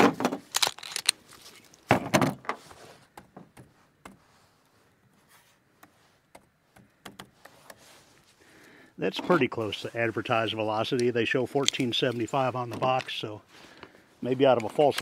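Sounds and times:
gear clacking and rattling: 0.5 - 1.1.

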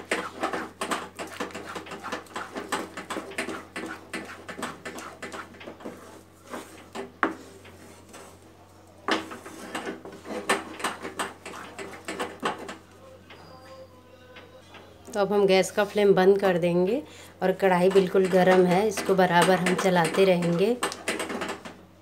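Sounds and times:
spatula scraping a frying pan: 0.0 - 8.4, 9.2 - 12.9.

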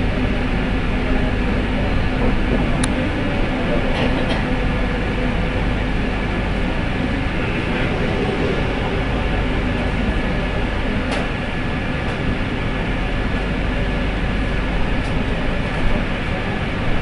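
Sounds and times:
train rumble and hiss: 0.0 - 16.8
faint high whine: 7.0 - 11.7.

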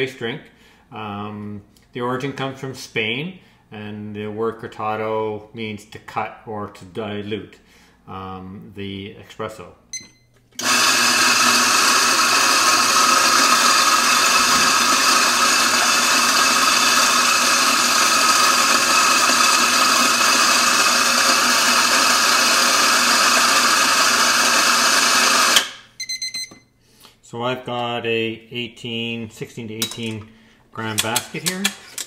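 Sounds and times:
coffee grinder motor whining: 10.6 - 25.8.

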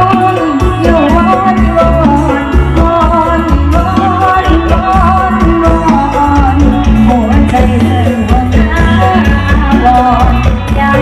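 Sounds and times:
song over outdoor speakers: 0.0 - 11.0.

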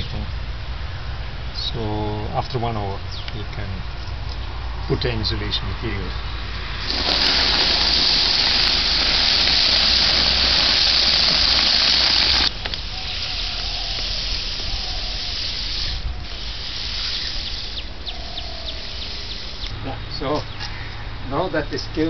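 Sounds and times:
granules pouring from a sack: 6.8 - 12.5.

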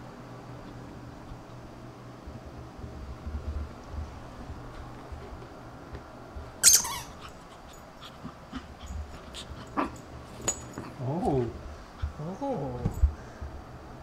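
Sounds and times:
puppy whining: 6.6 - 10.0.

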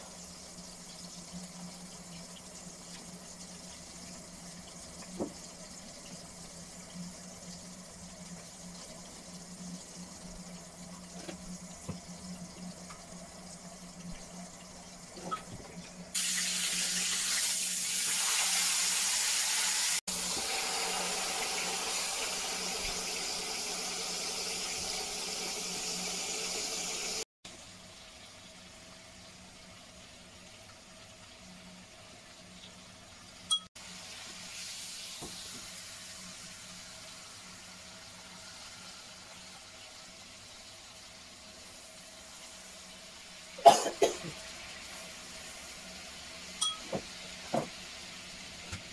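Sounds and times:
chicken sizzling in hot oil: 16.0 - 48.9
spoon clinking in ceramic bowl: 46.6 - 46.9.

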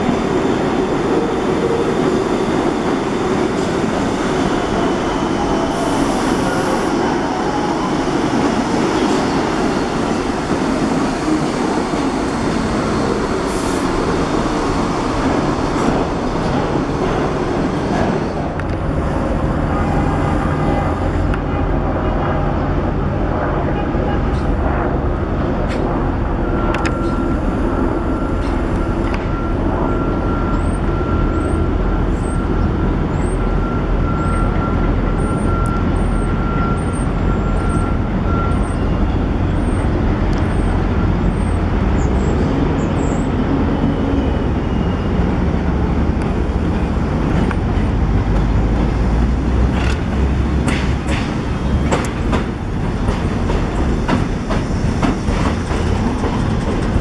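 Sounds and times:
city street traffic: 0.0 - 57.0
subway train rumbling on viaduct: 0.0 - 57.0
train clicks: 46.2 - 57.0.

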